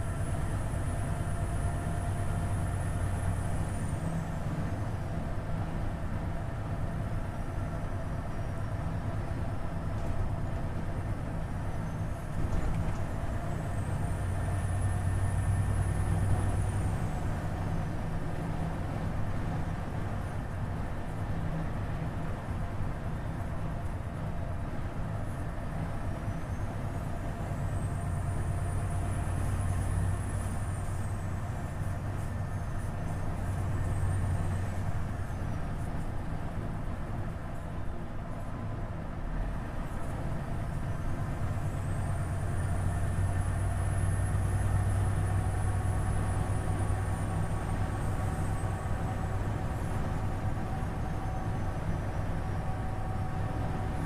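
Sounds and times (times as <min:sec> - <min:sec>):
truck diesel engine droning: 0:00.0 - 0:54.0.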